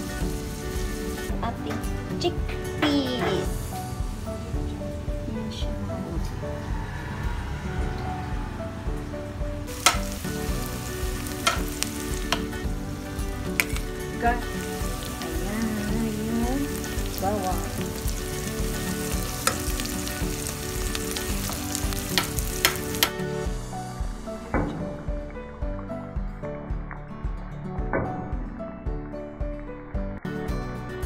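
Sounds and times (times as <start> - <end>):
onion sizzling in hot oil: 0.0 - 1.4, 3.1 - 4.5, 9.7 - 23.2.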